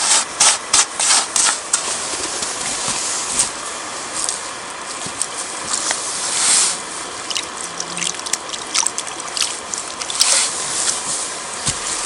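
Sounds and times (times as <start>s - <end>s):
water dripping and trickling: 7.2s - 10.3s.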